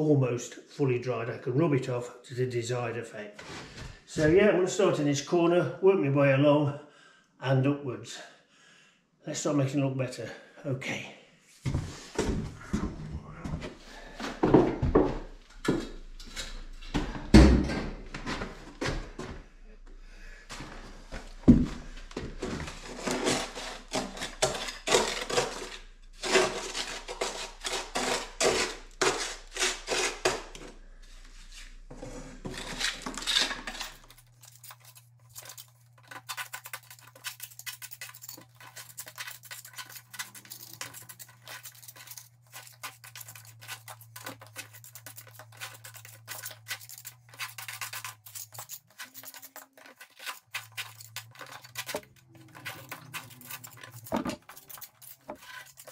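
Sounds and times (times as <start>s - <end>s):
trowel scraping mortar: 22.2s - 30.8s, 31.4s - 55.9s.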